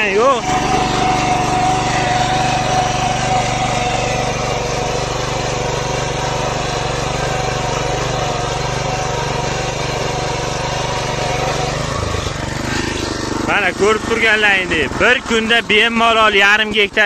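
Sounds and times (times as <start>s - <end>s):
small engine running under load: 0.0s - 17.0s.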